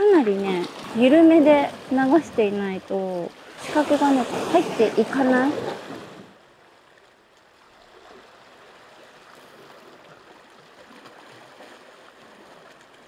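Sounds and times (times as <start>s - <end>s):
waves splashing against rocks: 0.0s - 6.4s.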